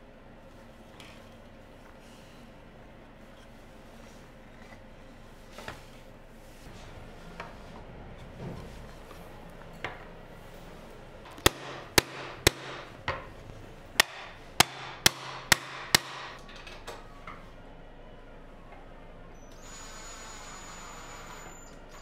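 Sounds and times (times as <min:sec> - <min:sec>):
hammer striking wood: 0:11.3 - 0:13.3, 0:14.0 - 0:16.4.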